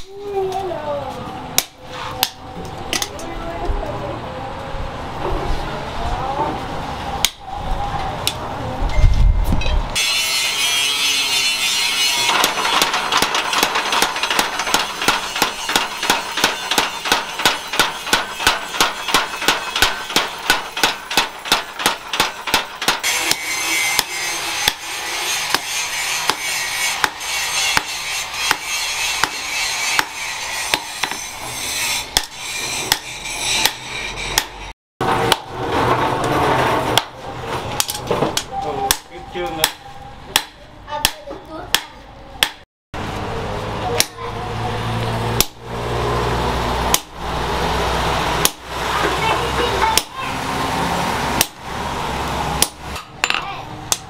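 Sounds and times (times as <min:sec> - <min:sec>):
hand hammer blows on anvil: 0:09.6 - 0:34.7
power hammer pounding steel: 0:10.0 - 0:37.2, 0:46.9 - 0:47.2, 0:48.2 - 0:50.2, 0:51.2 - 0:51.7, 0:52.5 - 0:54.0.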